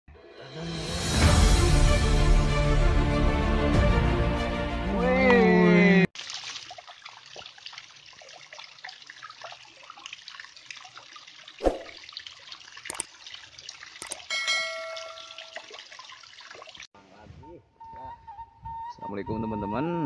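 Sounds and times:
water splash: 6.2s - 16.9s
water trickling and dripping: 6.2s - 16.9s
sharp clicks: 14.0s - 14.2s
bright ringing chime: 14.3s - 15.6s.

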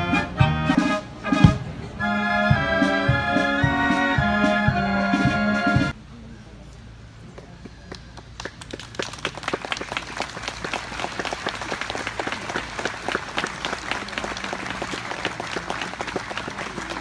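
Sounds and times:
crowd applauding: 7.9s - 17.0s.

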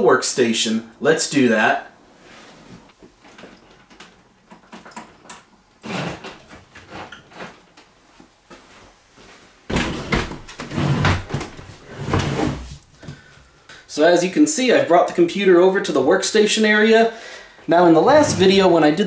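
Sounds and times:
bumping and rustling: 17.9s - 19.0s.

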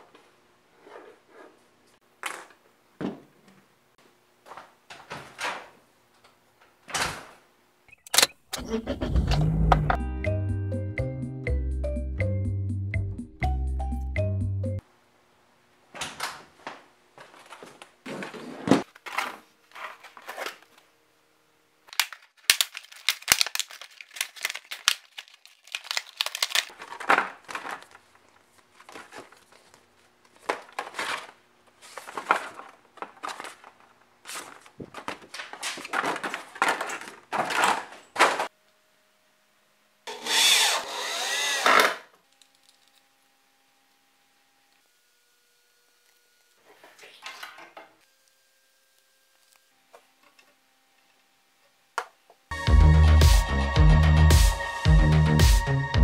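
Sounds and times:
packaging crinkling: 21.8s - 38.5s.

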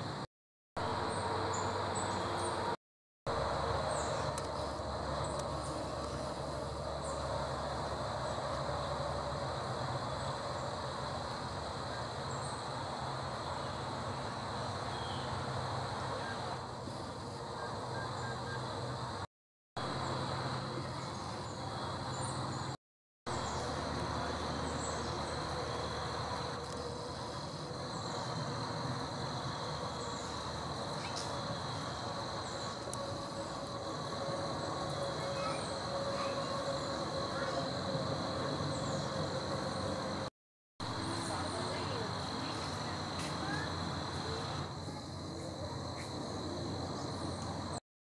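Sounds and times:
outdoor rumble and hiss: 0.0s - 47.8s
background hum: 0.8s - 40.3s
high whine: 23.3s - 47.8s
small birds chirping: 23.4s - 40.1s.

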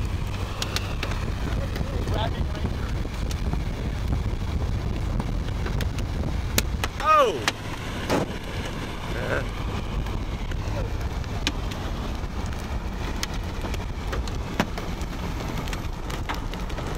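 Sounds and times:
road and wind noise in car: 0.0s - 16.9s.

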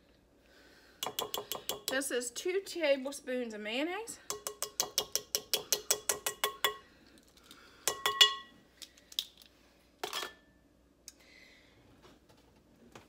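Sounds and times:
spoon tapping a bowl rim: 1.0s - 1.9s, 4.3s - 6.8s, 7.9s - 8.5s.

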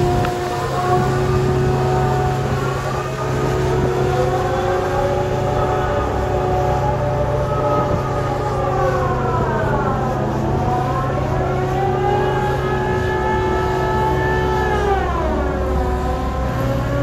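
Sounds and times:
crane hoist drive whining: 0.0s - 17.0s
low engine hum: 0.0s - 17.0s.

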